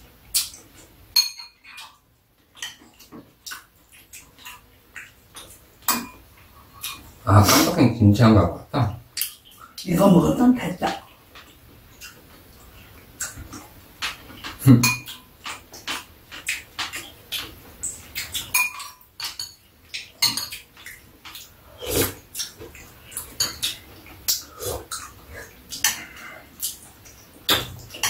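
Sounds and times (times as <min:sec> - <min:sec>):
mouth sounds of eating: 0:20.9 - 0:27.6.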